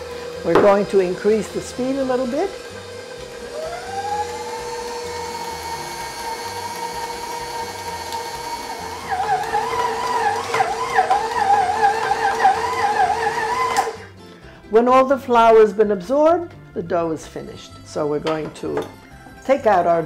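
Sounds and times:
stand mixer motor whining: 0:00.0 - 0:14.1.

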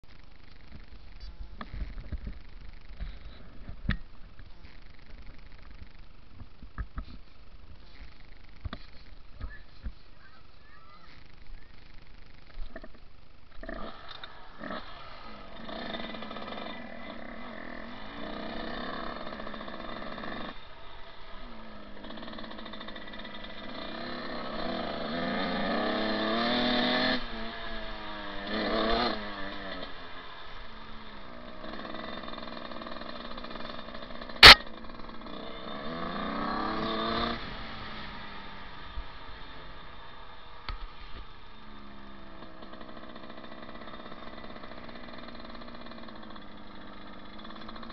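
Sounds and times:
dirt bike engine revving: 0:01.6 - 0:47.9
sharp click: 0:34.4 - 0:34.7.

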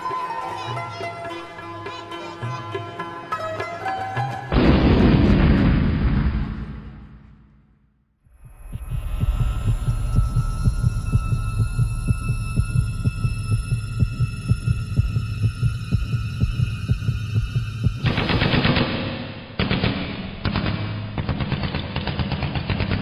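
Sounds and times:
low throbbing pulse: 0:08.3 - 0:21.6.

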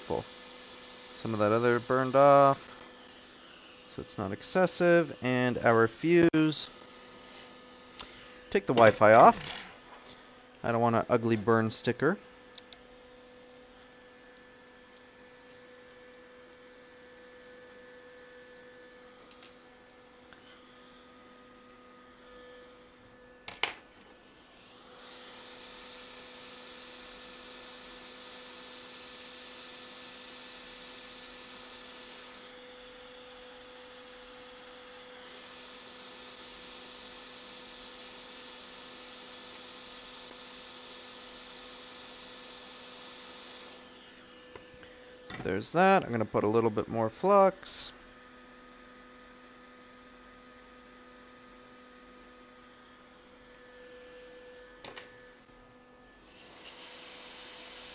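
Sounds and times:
electrical mains hum: 0:00.0 - 0:26.2
hot air blower hissing: 0:00.0 - 0:51.7, 0:52.3 - 0:57.9.

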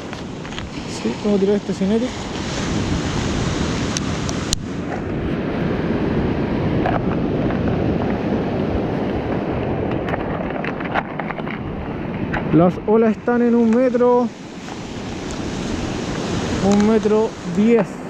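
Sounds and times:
surf on pebble beach: 0:00.0 - 0:18.0
wind buffeting microphone: 0:00.0 - 0:18.0.

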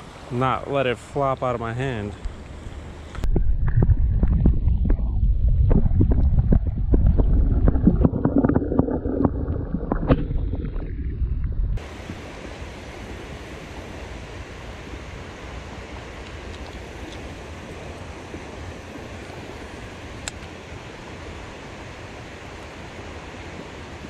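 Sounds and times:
clicks and knocks of moving water: 0:02.1 - 0:11.8
muffled underwater rumble: 0:02.6 - 0:11.9.

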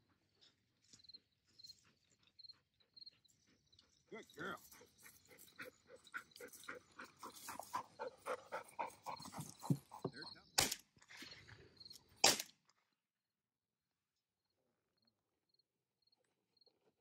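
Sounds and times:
dog panting rapidly: 0:01.2 - 0:10.0
shotgun shots: 0:10.6 - 0:10.8, 0:12.2 - 0:12.5.

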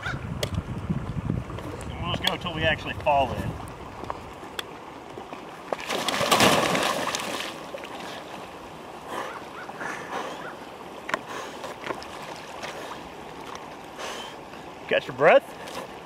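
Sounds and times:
water sloshing: 0:00.8 - 0:16.0
big splash into water: 0:05.8 - 0:07.6.

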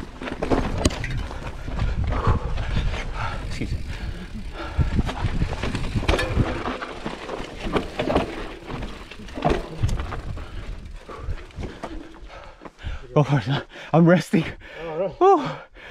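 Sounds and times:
mountain bike rattling over rocks: 0:00.0 - 0:12.6.

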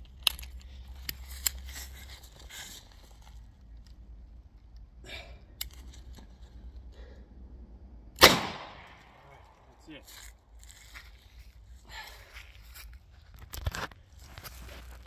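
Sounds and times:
loud gunshot with echo: 0:08.2 - 0:09.0.

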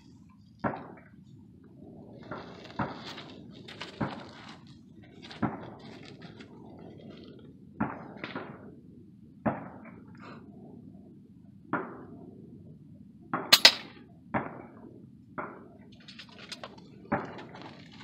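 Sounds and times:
air rifle shots: 0:13.4 - 0:14.6.

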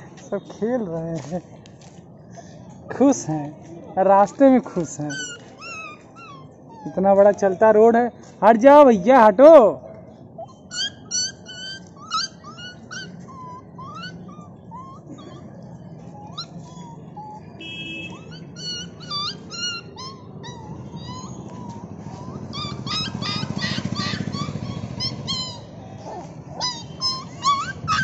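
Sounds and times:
road traffic rumble: 0:00.0 - 0:28.0
puppies squeaking and yipping: 0:04.2 - 0:08.0, 0:10.2 - 0:28.0.

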